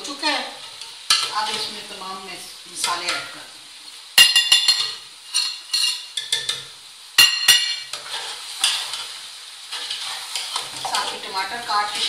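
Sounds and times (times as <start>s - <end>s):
faint frying sizzle: 0.0s - 12.0s
metal spoon clinking on pot: 4.2s - 6.6s, 7.2s - 7.8s
spoon stirring in pot: 4.2s - 11.4s.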